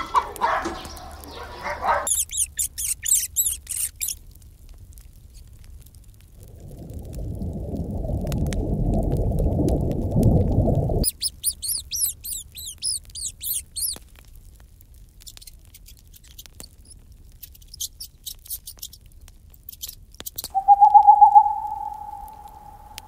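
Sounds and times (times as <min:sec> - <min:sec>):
owl hooting: 0:00.0 - 0:04.2, 0:11.0 - 0:14.0, 0:20.5 - 0:23.0
high squeaky chirps: 0:00.7 - 0:04.2, 0:11.0 - 0:14.0, 0:20.5 - 0:23.0
rat nibbling food: 0:02.0 - 0:04.2, 0:11.0 - 0:14.2, 0:15.2 - 0:19.0
low rushing noise: 0:20.6 - 0:23.0.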